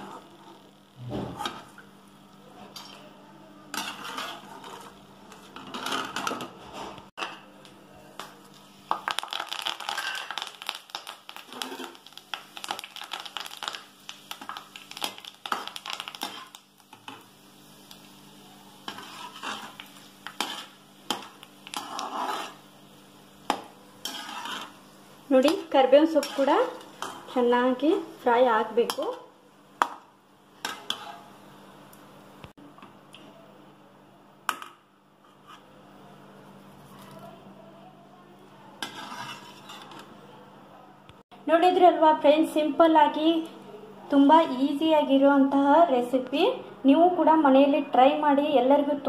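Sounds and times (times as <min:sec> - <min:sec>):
metal skimmer scraping a pan: 0:03.7 - 0:07.0, 0:18.9 - 0:20.8, 0:21.7 - 0:22.6, 0:24.0 - 0:24.8, 0:26.1 - 0:27.4, 0:30.6 - 0:31.3, 0:38.8 - 0:40.1
leaves crackling in hot oil: 0:08.1 - 0:32.0.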